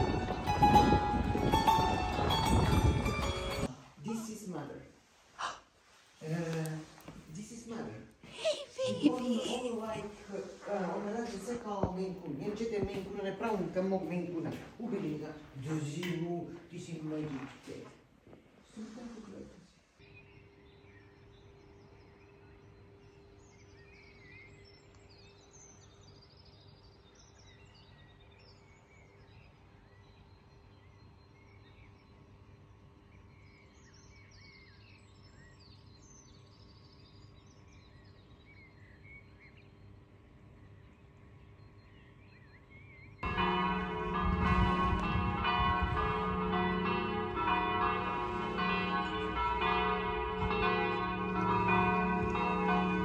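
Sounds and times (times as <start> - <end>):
church bells ringing: 0.0 - 3.7, 10.9 - 16.2, 43.2 - 53.0
small birds chirping: 20.0 - 53.0.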